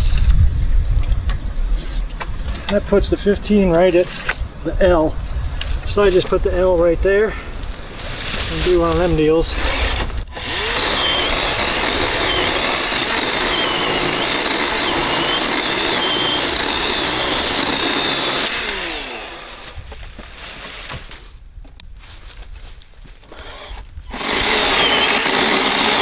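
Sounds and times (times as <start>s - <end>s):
electric chainsaw cutting wood: 9.5s - 19.8s, 23.2s - 26.0s.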